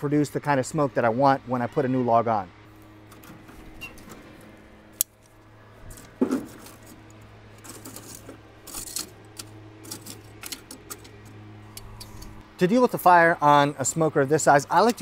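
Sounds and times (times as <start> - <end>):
metal scraping: 5.7 - 12.4.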